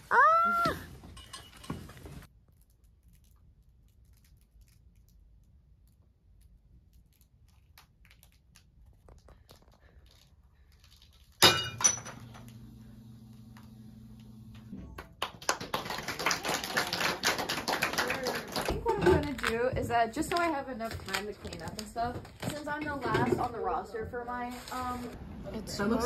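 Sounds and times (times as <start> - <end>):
glass smashing on floor: 11.4 - 12.4
steady low hum: 12.0 - 14.7.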